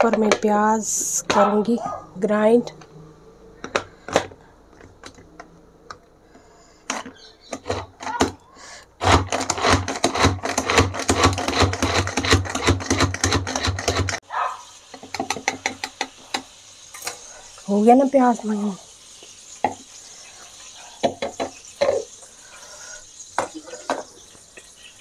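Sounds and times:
vegetable chopper clicking and clattering: 6.8 - 8.4, 9.0 - 14.2, 14.9 - 16.5.

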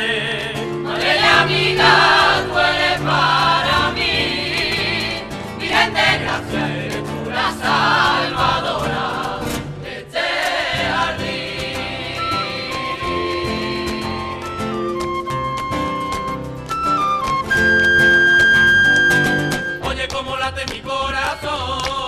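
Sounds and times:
instrumental backing music: 0.0 - 20.2
choir singing: 0.8 - 14.8.

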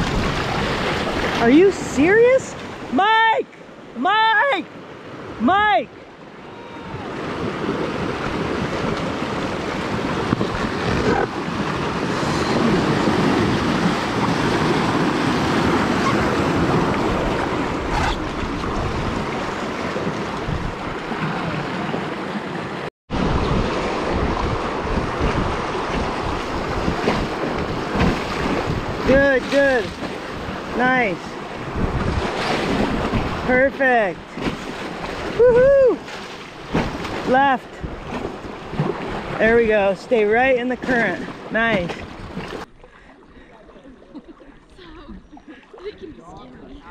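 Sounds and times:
wind buffeting microphone: 0.0 - 2.4, 6.8 - 22.2, 23.1 - 33.6.

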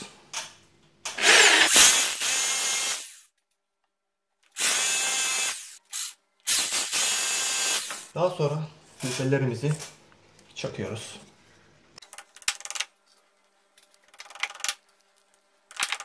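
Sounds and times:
hammer drill boring into plaster: 1.2 - 3.2, 4.6 - 5.8.

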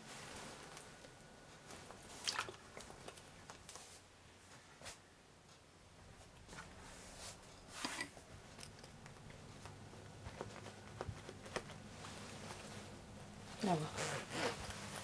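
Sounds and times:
jacket fabric rustling: 0.0 - 2.3, 6.1 - 15.0.

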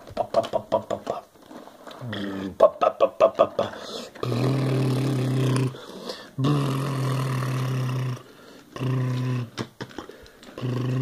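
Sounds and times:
man humming low drones: 4.2 - 5.8, 6.4 - 9.6, 10.6 - 11.0.

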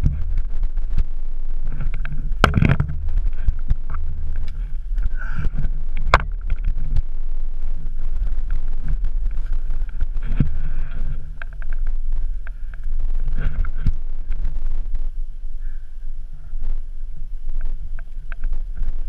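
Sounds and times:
knocks and scrapes on snow and rock: 0.0 - 15.2.

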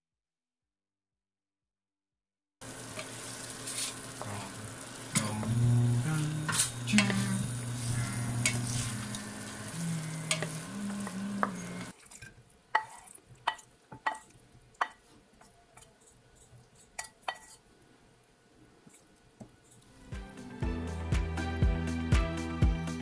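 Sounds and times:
tofu sizzling in pan: 2.6 - 15.0
low steady hum: 4.0 - 11.9
spatula clicking and scraping: 6.4 - 9.2, 10.2 - 19.9.

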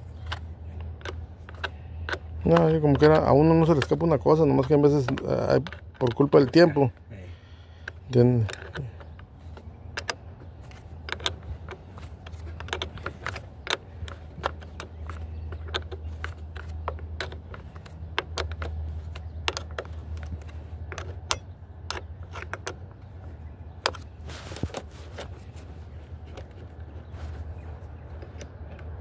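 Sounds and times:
steady low hum: 0.0 - 29.0
wrench clicking on bolt: 0.2 - 6.7, 7.8 - 22.9.

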